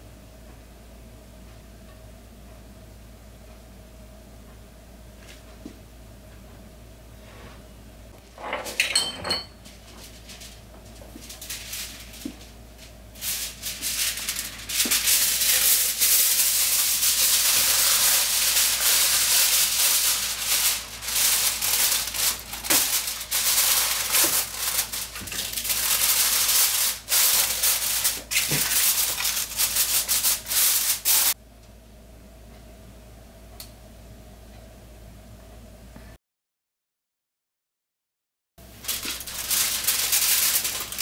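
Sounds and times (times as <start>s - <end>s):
aluminium foil crinkling: 9.6s - 31.4s, 38.6s - 41.0s.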